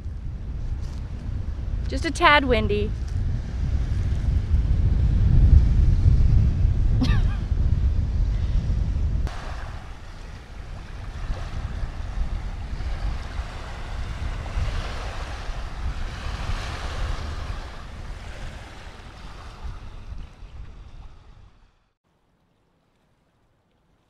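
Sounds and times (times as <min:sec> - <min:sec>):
wind buffeting microphone: 0:00.0 - 0:21.8
waves washing onto shore: 0:09.3 - 0:21.3.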